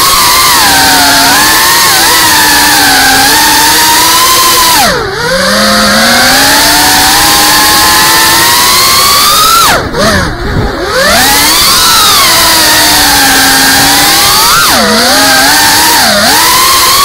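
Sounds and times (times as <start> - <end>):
quadcopter motors whining: 0.0 - 17.0.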